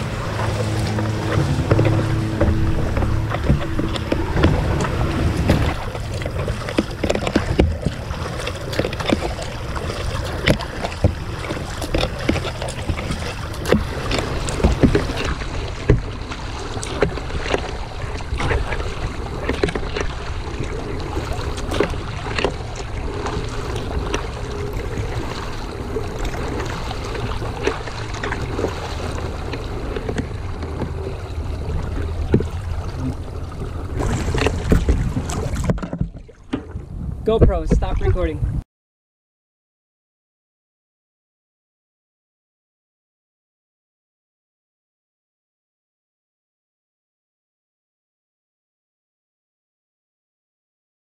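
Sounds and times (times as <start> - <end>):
paddle splashes: 0.0 - 38.4
water lapping against kayak hull: 0.0 - 38.6
wind rumble on microphone: 0.0 - 38.6.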